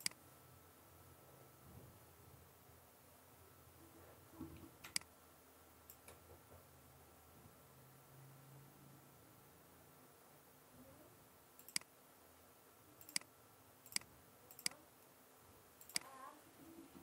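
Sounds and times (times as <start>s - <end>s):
computer mouse button clicking: 11.6s - 11.9s.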